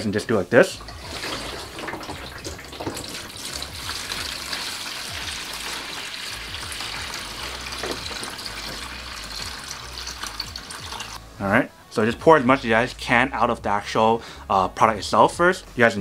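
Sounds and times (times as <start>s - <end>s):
water pouring into plastic tub: 0.8s - 11.2s.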